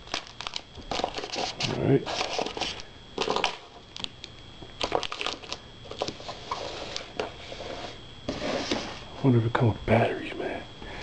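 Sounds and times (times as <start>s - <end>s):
packaging rustling and crinkling: 0.0s - 4.2s, 4.8s - 7.4s.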